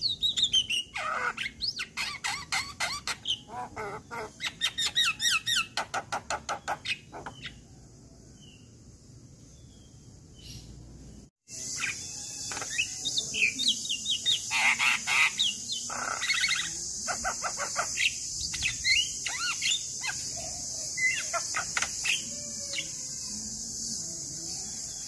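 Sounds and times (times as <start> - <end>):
myna bird singing: 0.0 - 25.0.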